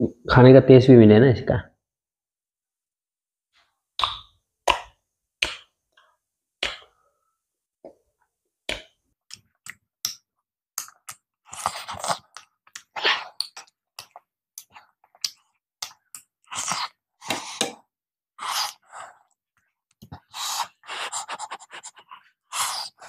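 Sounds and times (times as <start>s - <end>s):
man chewing with lip smacks: 10.8s - 17.0s.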